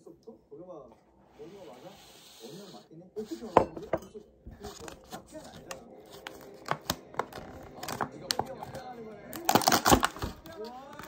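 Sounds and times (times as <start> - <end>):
plastic container crackling: 4.5 - 11.0
sharp plastic snaps: 9.4 - 11.0.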